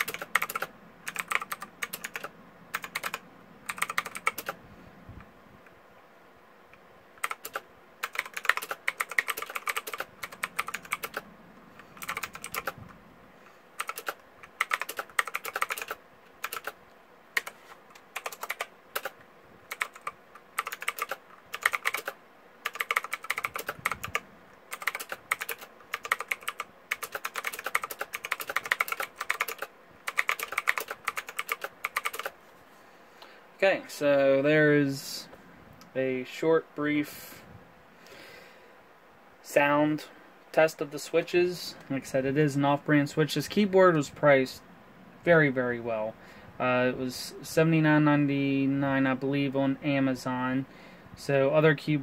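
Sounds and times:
mechanical keyboard typing: 0.0s - 4.6s, 7.2s - 11.2s, 11.8s - 12.8s, 13.8s - 32.4s.

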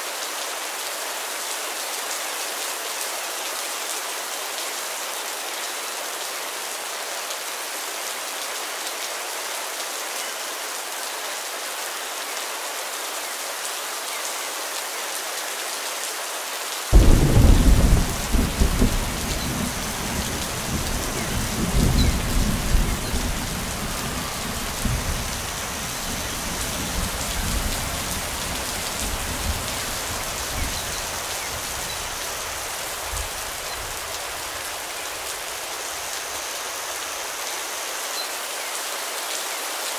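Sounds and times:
steady rain falling: 0.0s - 39.9s
thunder crack and rumble: 17.0s - 25.5s.

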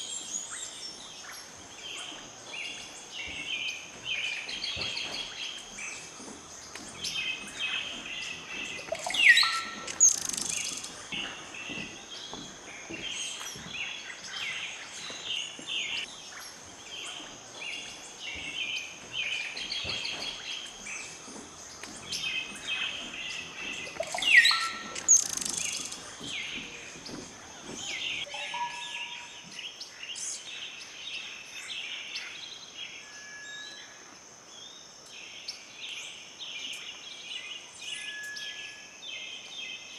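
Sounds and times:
forest birds chirping: 0.0s - 39.9s
loud rising whistled bird call: 8.7s - 11.2s, 23.8s - 25.9s, 27.8s - 29.4s
steady high-pitched tone: 28.3s - 29.6s.

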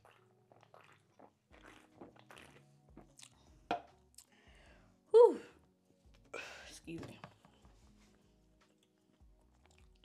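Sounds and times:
person swallowing a drink: 0.0s - 4.3s.

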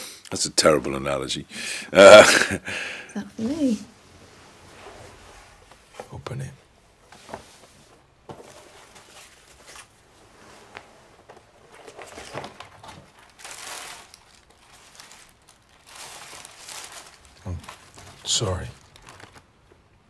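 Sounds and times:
paper wrapping rustling: 7.3s - 19.8s.

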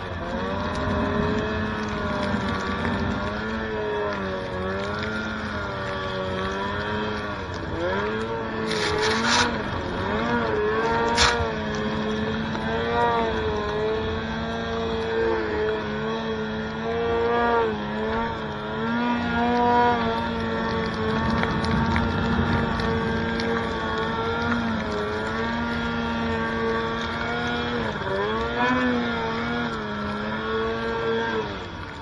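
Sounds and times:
snowmobile engine revving: 0.0s - 31.8s
hissing snow spray: 8.7s - 11.5s.

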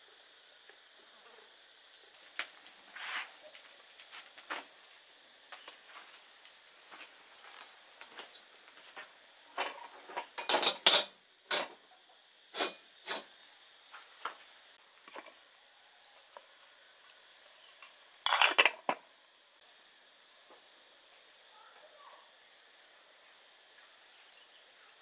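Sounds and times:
birds chirping: 5.5s - 8.7s
metal wok knocking and scraping: 9.6s - 11.8s, 12.6s - 13.2s, 18.2s - 19.0s.

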